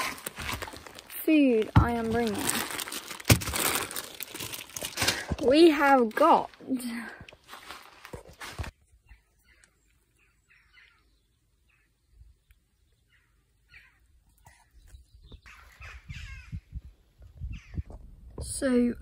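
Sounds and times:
rustling: 0:00.0 - 0:08.8
faint bird chirps: 0:08.8 - 0:16.8.

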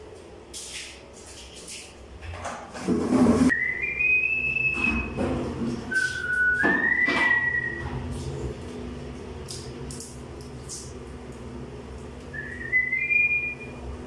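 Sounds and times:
high clean whistling: 0:03.5 - 0:05.2, 0:05.9 - 0:07.9, 0:12.3 - 0:13.8.

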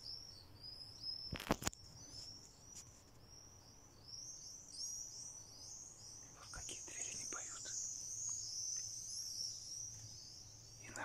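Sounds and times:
swifts screeching: 0:04.2 - 0:11.0.

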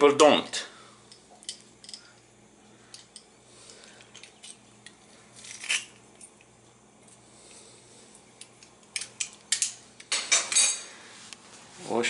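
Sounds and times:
metal clinks and scraping: 0:01.1 - 0:02.2, 0:02.9 - 0:06.4, 0:08.9 - 0:10.9.

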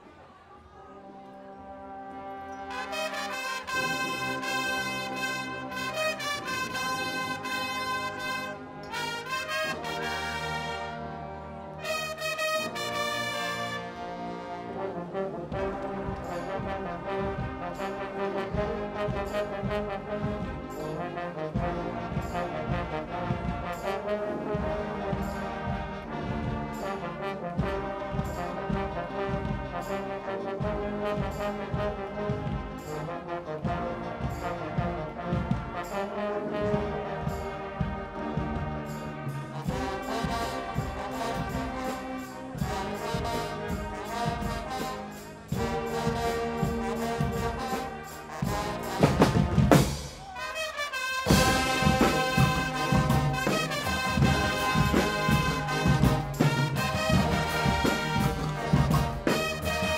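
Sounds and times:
brass band playing a tune: 0:00.0 - 0:59.9
drum kit beat: 0:21.5 - 0:32.9, 0:33.6 - 0:36.0, 0:36.6 - 0:50.4, 0:51.2 - 0:59.9.

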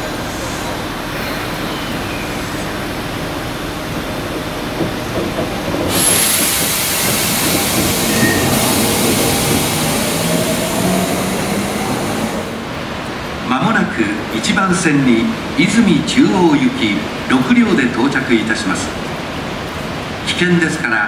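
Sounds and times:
electric train motor hum: 0:00.0 - 0:12.8
loud steady hiss: 0:05.9 - 0:15.0.

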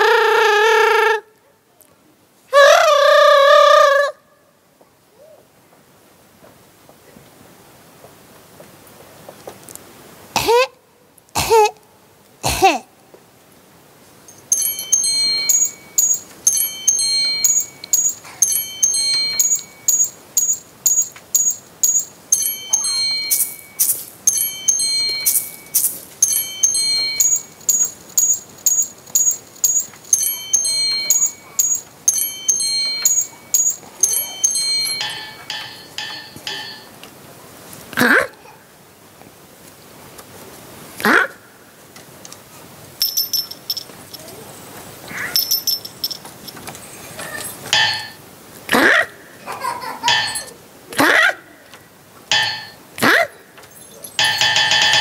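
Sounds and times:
bell-like chiming notes: 0:14.3 - 0:37.0, 0:50.1 - 0:50.6, 0:52.3 - 0:52.8.

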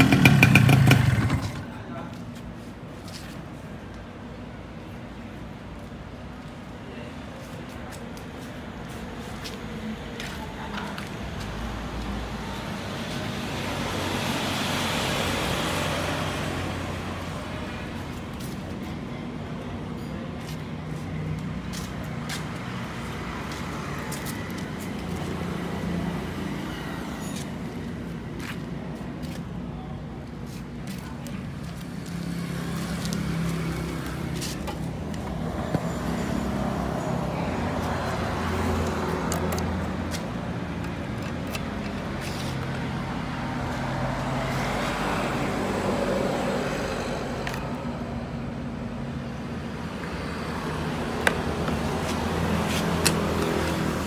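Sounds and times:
motorcycle engine idling: 0:00.0 - 0:01.8.

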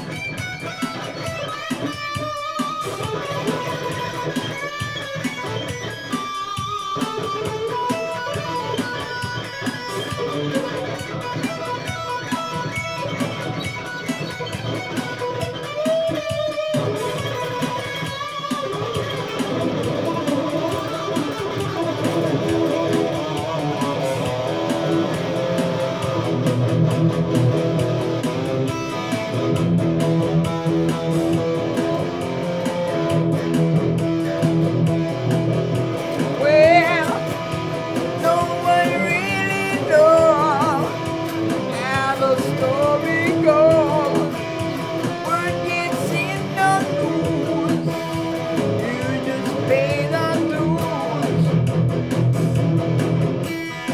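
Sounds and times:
drum machine rhythm: 0:00.0 - 0:53.9
electric guitar playing: 0:00.0 - 0:53.9.

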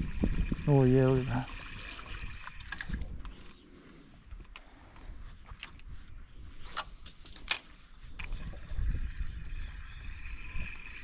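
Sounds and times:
reel and rod clicks: 0:01.8 - 0:03.6, 0:04.2 - 0:05.9, 0:06.6 - 0:08.8.

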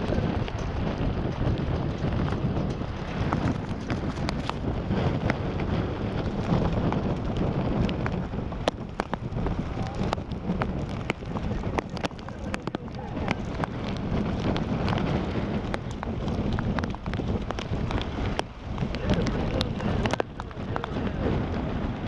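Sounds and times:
raindrops ticking: 0:00.0 - 0:22.0
strong wind buffeting microphone: 0:00.0 - 0:22.0.

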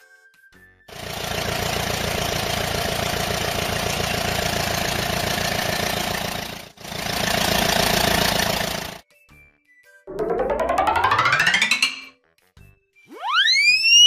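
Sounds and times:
tractor engine rumbling: 0:00.9 - 0:09.0.

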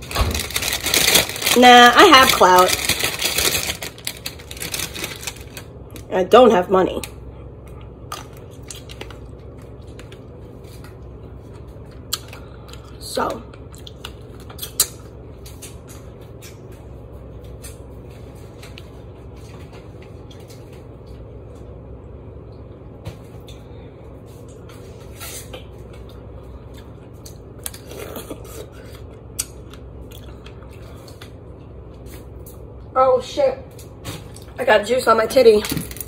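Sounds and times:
steady low hum: 0:00.0 - 0:36.0
wet mouth clicks and smacks: 0:13.7 - 0:15.0.

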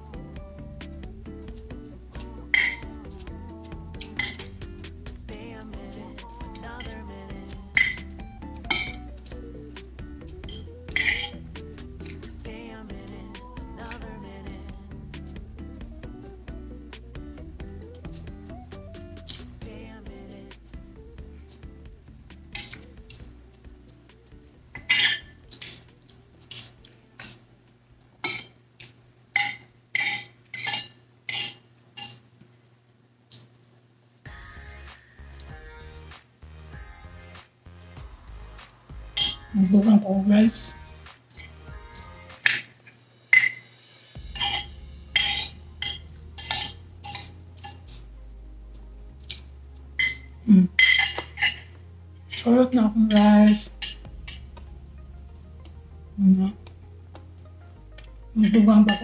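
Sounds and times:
cutlery clinking on a plate: 0:02.2 - 0:02.9, 0:08.7 - 0:09.0, 0:10.4 - 0:11.4, 0:28.2 - 0:28.6, 0:29.4 - 0:32.3, 0:43.3 - 0:43.7, 0:45.2 - 0:48.0, 0:50.0 - 0:51.7.

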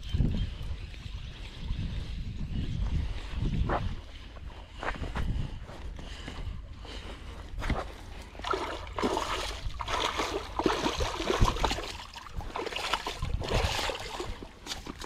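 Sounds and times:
water splashing and sloshing: 0:07.0 - 0:15.0.

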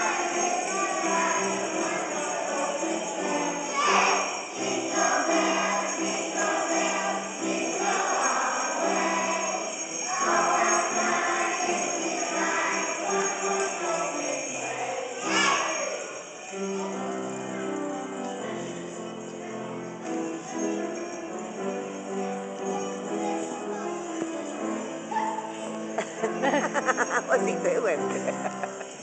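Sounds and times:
children singing: 0:00.0 - 0:17.4
hand jingle bells shaken: 0:00.0 - 0:29.0.

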